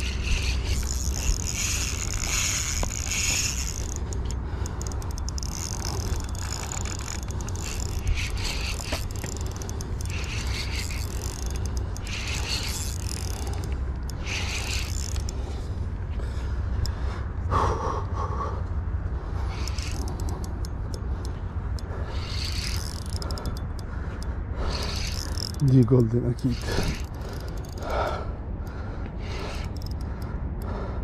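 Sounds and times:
fishing reel gears whirring: 0:00.0 - 0:17.2, 0:19.2 - 0:31.0.

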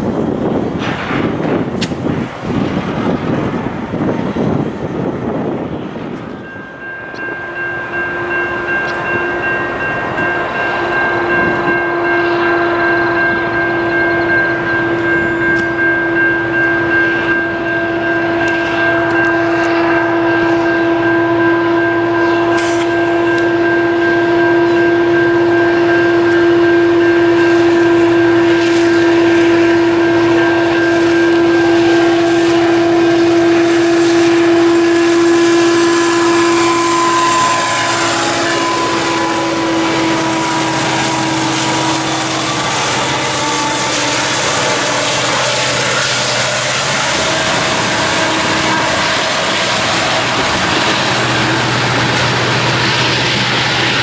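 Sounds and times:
wind buffeting microphone: 0:00.0 - 0:22.3
locomotive horn: 0:00.4 - 0:54.0.

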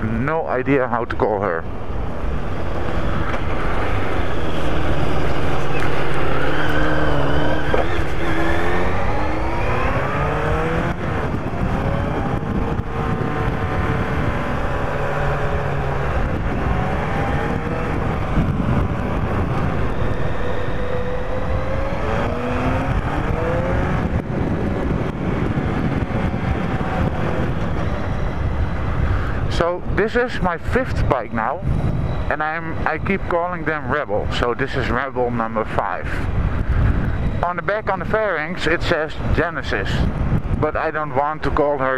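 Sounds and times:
motorcycle engine accelerating: 0:01.8 - 0:29.5.

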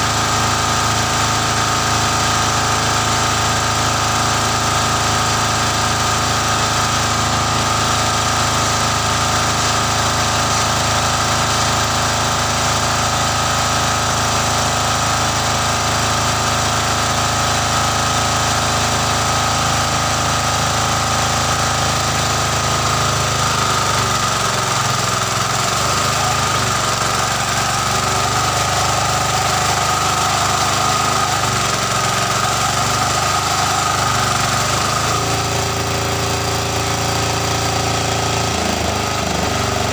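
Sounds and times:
diesel engine running: 0:00.0 - 0:39.9
water gushing from pipe: 0:00.0 - 0:39.9.

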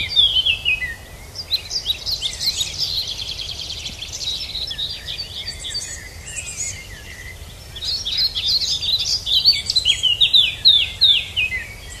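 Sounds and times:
songbirds chirping and whistling: 0:00.0 - 0:12.0.

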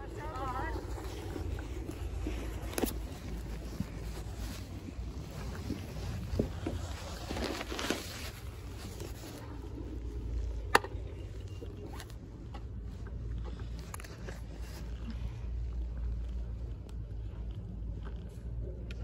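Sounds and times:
wind rumbling on microphone: 0:00.0 - 0:18.6
rustle: 0:00.2 - 0:10.5.

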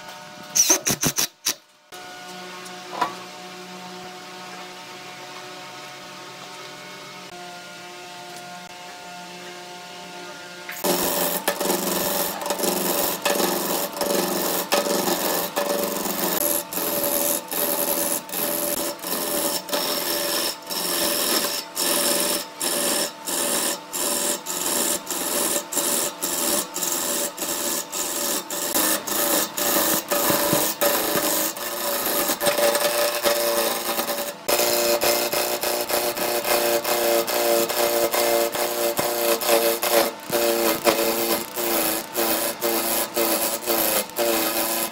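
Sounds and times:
lathe tool cutting wood: 0:10.8 - 0:44.9.

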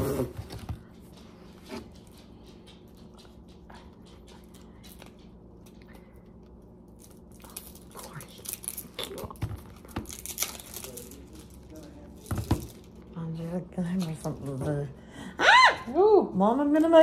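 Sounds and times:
low steady hum: 0:00.0 - 0:17.0
package being opened: 0:06.9 - 0:13.0.

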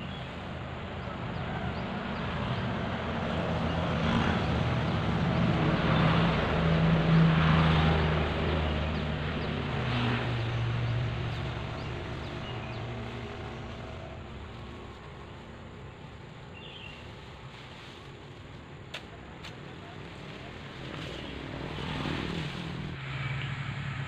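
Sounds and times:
vehicle engine passing by: 0:01.0 - 0:15.4, 0:19.9 - 0:24.0.

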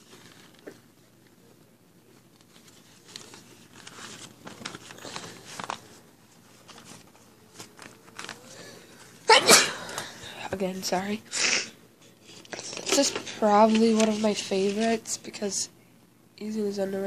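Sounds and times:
rustling and crinkling: 0:00.0 - 0:09.3, 0:12.0 - 0:15.4.

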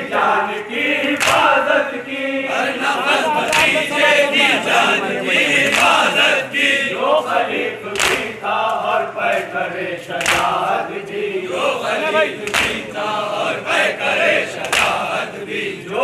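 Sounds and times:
men chanting in chorus: 0:00.0 - 0:16.0
chest-beating slaps: 0:01.2 - 0:01.6, 0:03.5 - 0:03.8, 0:05.6 - 0:06.1, 0:08.0 - 0:08.3, 0:10.2 - 0:10.6, 0:12.4 - 0:12.9, 0:14.6 - 0:15.1.

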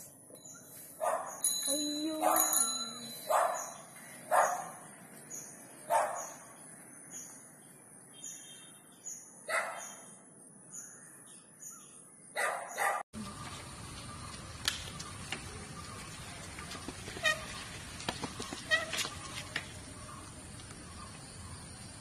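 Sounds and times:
dog barking: 0:01.0 - 0:01.4, 0:03.3 - 0:04.8, 0:05.9 - 0:06.4, 0:09.5 - 0:10.0, 0:12.4 - 0:13.0
steady outdoor hiss: 0:13.2 - 0:22.0.

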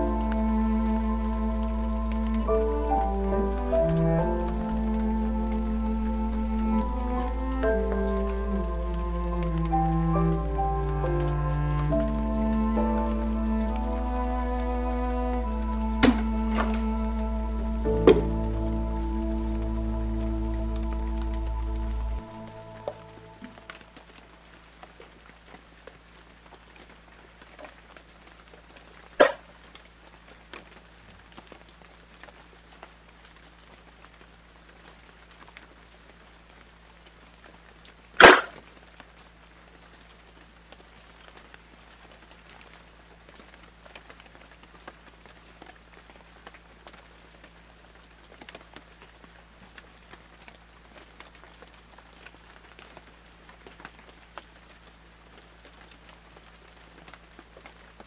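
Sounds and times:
low hum: 0:00.0 - 0:24.5
faint crackle: 0:00.0 - 0:58.0.

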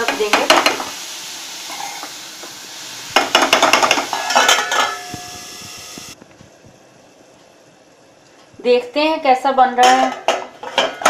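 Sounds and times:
mushrooms sizzling in butter: 0:00.0 - 0:06.2
metal spatula scraping pan: 0:01.7 - 0:02.1, 0:03.6 - 0:05.4
steel lid clinking with ring: 0:04.1 - 0:05.4.

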